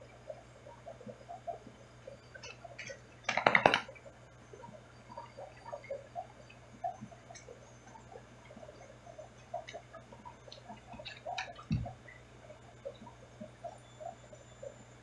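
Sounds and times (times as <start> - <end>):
faint drips and ticks: 0.0 - 15.0
low steady aquarium hum: 0.0 - 15.0.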